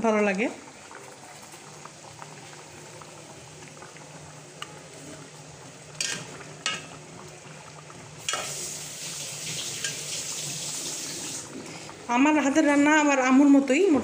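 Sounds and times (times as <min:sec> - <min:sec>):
steady hiss: 0:08.2 - 0:11.5.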